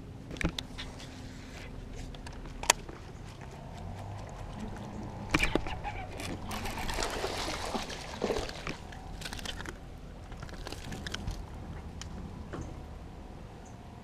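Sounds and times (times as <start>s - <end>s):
fish splashing in water: 3.3s - 11.6s.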